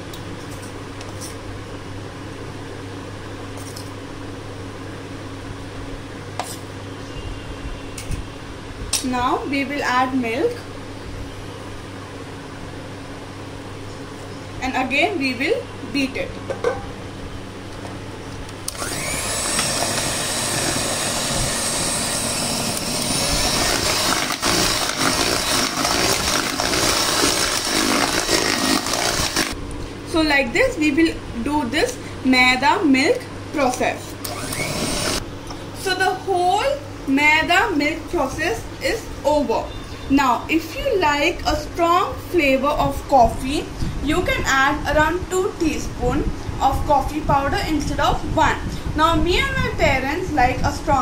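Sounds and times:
fan humming: 0:00.0 - 0:39.5, 0:40.3 - 0:51.0
electric hand mixer whining: 0:18.7 - 0:29.6, 0:34.2 - 0:35.2
beaters churning batter: 0:18.8 - 0:29.6.

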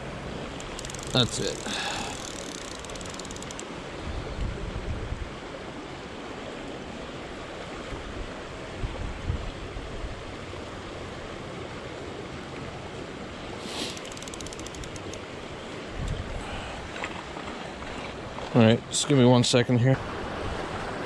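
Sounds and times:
creek water rushing: 0:00.0 - 0:21.0
fishing reel ratchet clicking: 0:00.5 - 0:03.7, 0:13.9 - 0:15.2
wind gusts on microphone: 0:03.4 - 0:05.5, 0:07.8 - 0:10.4, 0:15.8 - 0:17.0.

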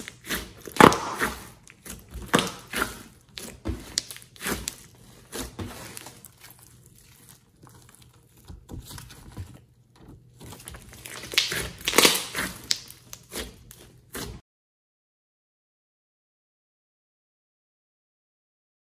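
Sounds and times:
slime crackling and popping: 0:00.0 - 0:09.0, 0:10.5 - 0:14.3.

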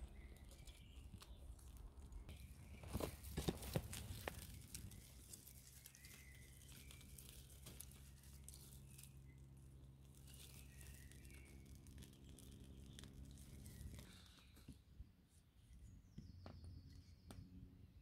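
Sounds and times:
twigs crackling on campfire: 0:00.0 - 0:14.6
low steady hum: 0:00.0 - 0:18.0.

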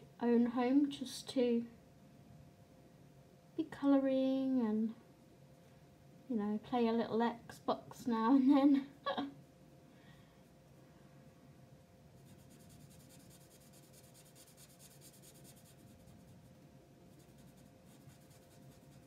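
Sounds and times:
marker scratching on paper: 0:12.2 - 0:16.3, 0:17.2 - 0:19.0.

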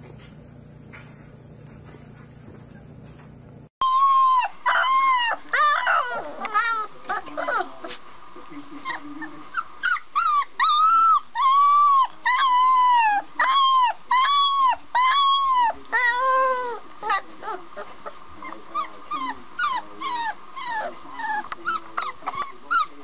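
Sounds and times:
puppy yelping and whimpering: 0:03.8 - 0:07.7, 0:08.8 - 0:23.0.

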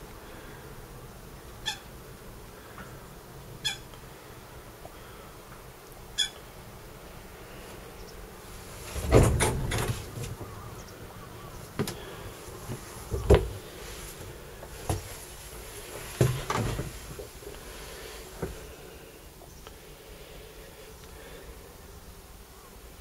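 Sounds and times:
faint high hiss: 0:00.0 - 0:23.0
knocks and thumps of handling: 0:08.9 - 0:10.6, 0:11.8 - 0:12.0, 0:12.6 - 0:13.6, 0:14.2 - 0:15.2, 0:15.9 - 0:17.4.

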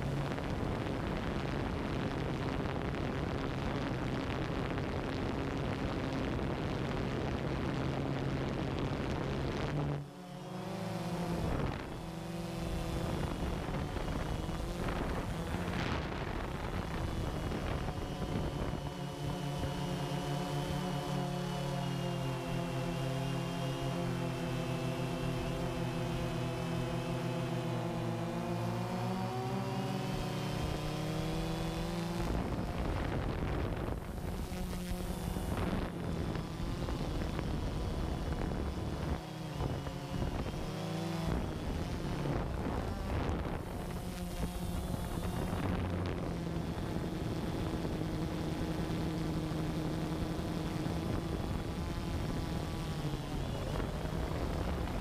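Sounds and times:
drone propellers humming: 0:00.0 - 0:55.0
wind buffeting microphone: 0:11.4 - 0:19.8, 0:30.6 - 0:48.9, 0:50.2 - 0:55.0.

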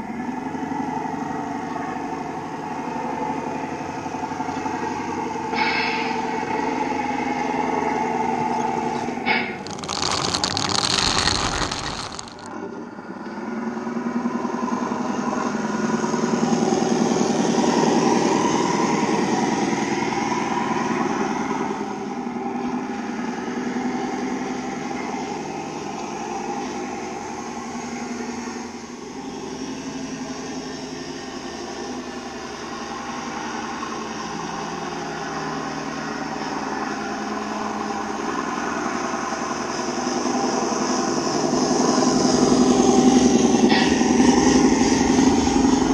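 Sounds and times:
pellets pouring out: 0:09.6 - 0:12.5.

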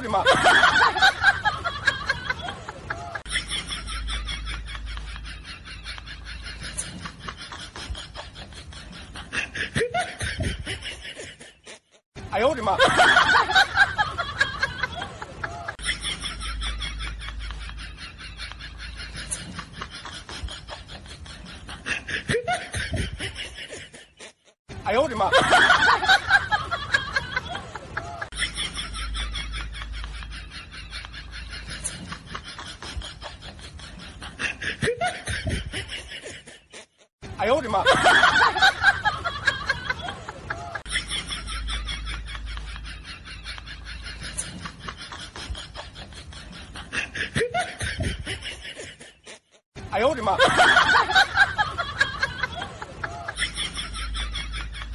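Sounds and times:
snickering laughter: 0:00.0 - 0:12.0, 0:12.6 - 0:54.9
person snickering: 0:27.1 - 0:37.1, 0:39.7 - 0:49.6.

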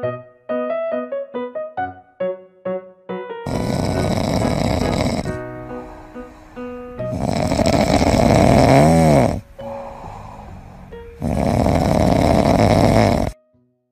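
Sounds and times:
background music: 0:00.0 - 0:13.8
dog snoring: 0:03.5 - 0:13.4.

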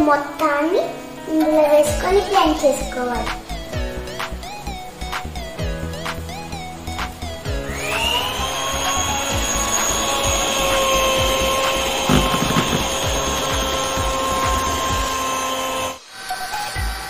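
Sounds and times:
electric hand mixer whining: 0:07.4 - 0:16.8
knock: 0:12.1 - 0:12.9.

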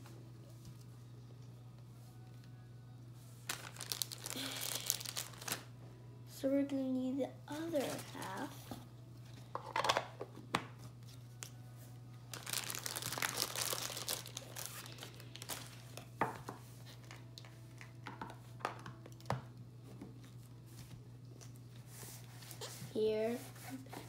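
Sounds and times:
low steady hum: 0:00.0 - 0:24.0
plastic packaging crinkling: 0:03.4 - 0:05.7, 0:07.6 - 0:08.6, 0:12.3 - 0:16.3.

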